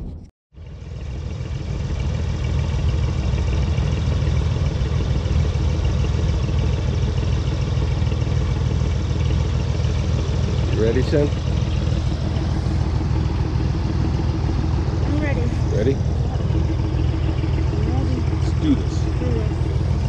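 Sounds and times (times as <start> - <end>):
engine droning: 0.0 - 20.0.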